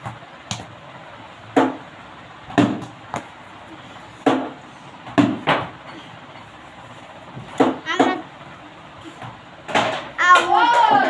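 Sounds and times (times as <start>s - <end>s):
plastic bat hitting ball: 2.5s - 3.3s.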